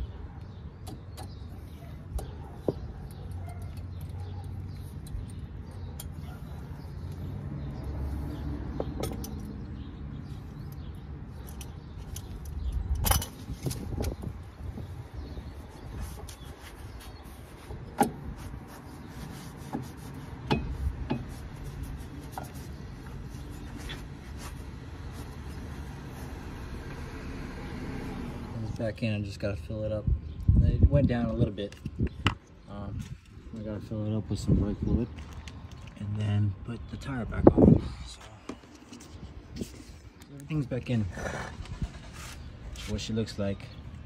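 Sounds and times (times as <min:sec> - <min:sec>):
sharp metal knocks: 0:20.4 - 0:21.3.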